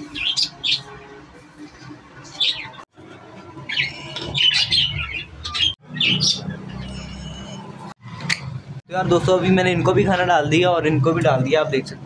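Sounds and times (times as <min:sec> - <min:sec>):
budgerigars chirping and squawking: 0:00.0 - 0:00.9, 0:02.2 - 0:02.8, 0:03.5 - 0:07.9.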